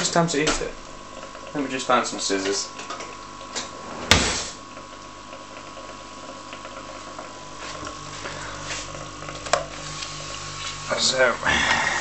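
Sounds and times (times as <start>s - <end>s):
air pump humming: 0.0s - 12.0s
sharp knock: 4.0s - 4.6s.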